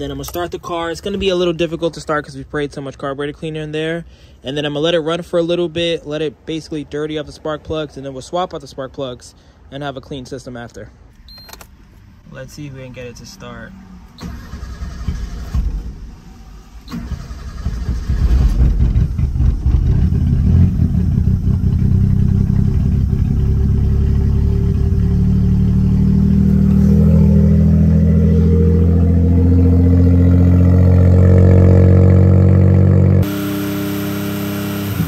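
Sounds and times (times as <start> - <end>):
car engine starting and running: 11.1 - 35.0.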